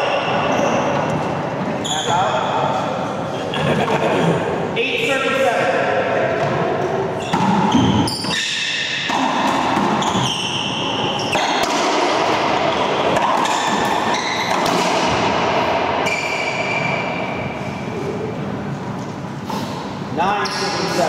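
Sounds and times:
racquetball hitting racquets and walls: 0.0s - 2.6s, 5.6s - 21.0s
sneaker squeaks on hardwood floor: 0.0s - 2.7s, 7.2s - 11.8s, 12.8s - 14.7s, 16.0s - 17.9s.

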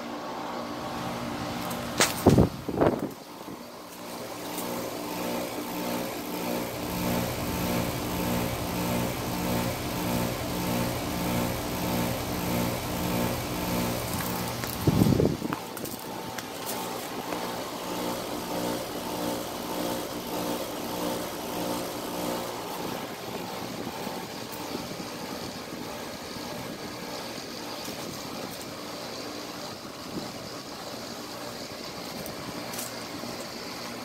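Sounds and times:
compressor hum: 0.0s - 34.0s
condenser fan rushing air: 0.0s - 34.0s.

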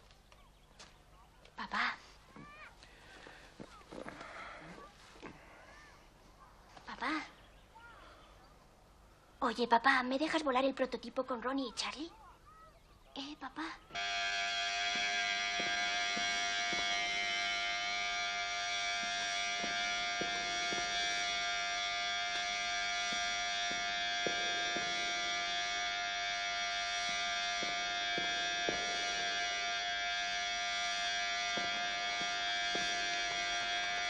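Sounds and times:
electric hair clippers buzzing: 13.9s - 34.0s.

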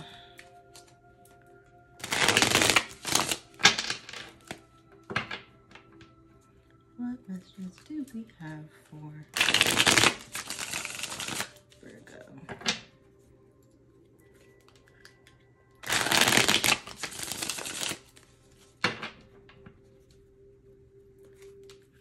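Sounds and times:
cards shuffling: 2.0s - 4.6s, 9.4s - 11.8s, 14.6s - 18.8s.

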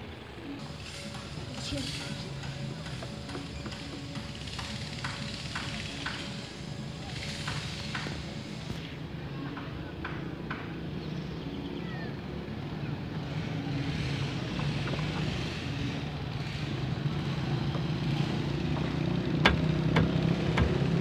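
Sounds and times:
motor engine running: 0.5s - 8.9s.

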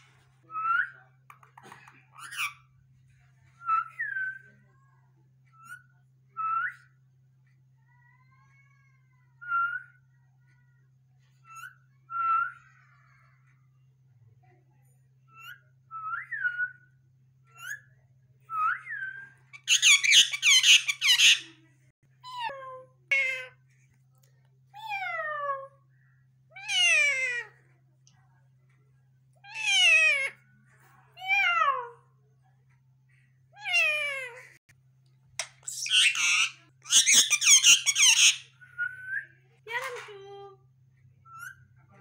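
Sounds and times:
parakeet whistling: 18.6s - 21.5s, 35.4s - 39.2s
parakeet harsh screech: 19.6s - 21.4s, 35.6s - 38.5s.

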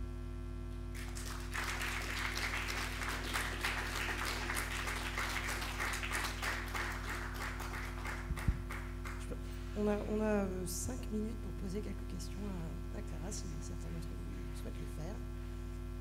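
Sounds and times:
electrical mains hum: 0.0s - 16.0s
audience applauding: 0.9s - 9.3s.

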